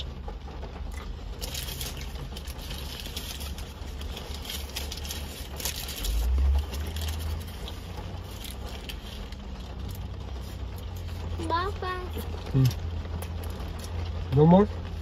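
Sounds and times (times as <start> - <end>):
paper wrapper crinkling: 0.9 - 11.2.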